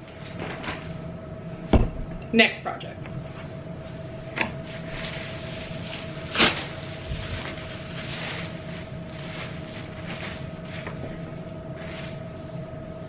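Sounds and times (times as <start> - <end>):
sheet rustling: 0.1 - 1.0, 4.0 - 12.6
sheet flapping: 4.7 - 11.2.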